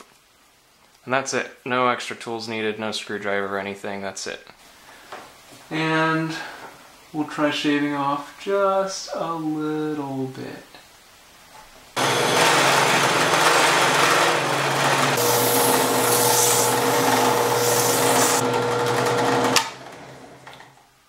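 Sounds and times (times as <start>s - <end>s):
tool shaving spinning blank: 12.0s - 19.7s
drill press motor humming: 12.0s - 20.6s.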